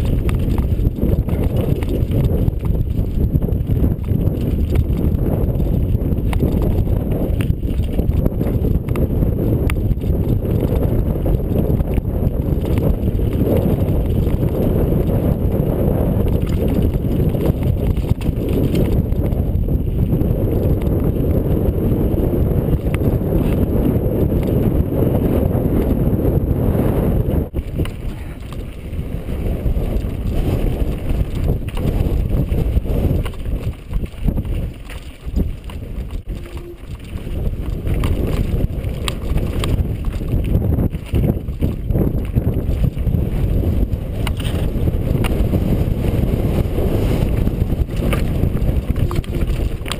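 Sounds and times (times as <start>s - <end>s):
wind on microphone: 0.0s - 49.9s
bike knocks and rattles: 44.1s - 45.7s.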